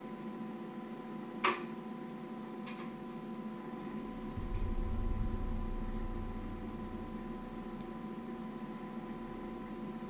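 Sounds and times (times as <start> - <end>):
electrical hum: 0.0 - 10.0
low rumble: 3.9 - 10.0.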